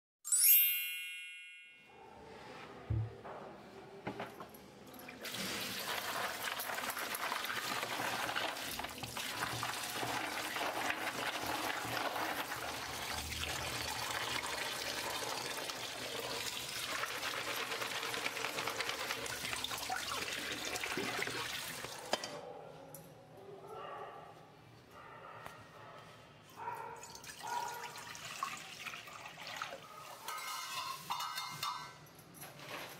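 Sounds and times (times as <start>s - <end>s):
water running onto peanuts: 5.2s - 22.0s.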